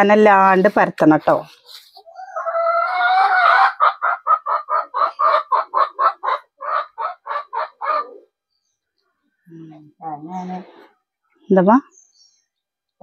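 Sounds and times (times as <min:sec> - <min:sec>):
chicken clucking: 0:01.6 - 0:08.4.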